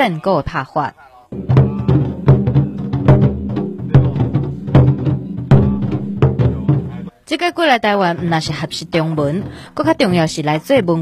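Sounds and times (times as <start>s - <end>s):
large drums beaten with sticks: 1.3s - 7.1s.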